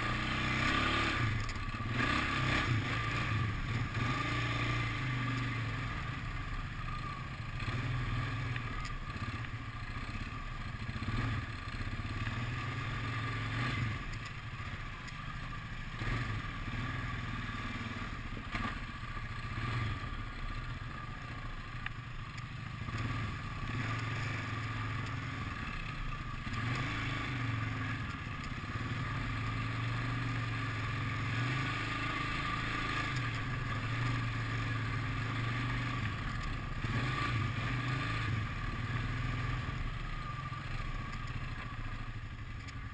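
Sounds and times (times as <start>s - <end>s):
quad bike engine running: 0.0s - 42.9s.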